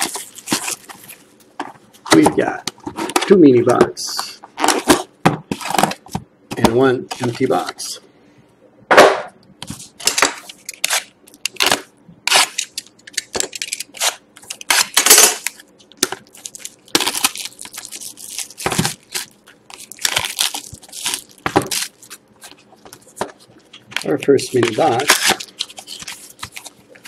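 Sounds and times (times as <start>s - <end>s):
plastic shrink-wrap crinkling and tearing: 10.6s - 27.0s.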